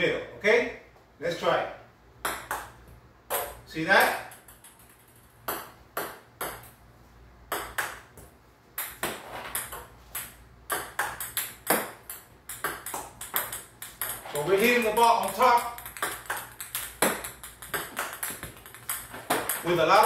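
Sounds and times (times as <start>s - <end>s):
table tennis ball clicks: 8.8s - 19.7s.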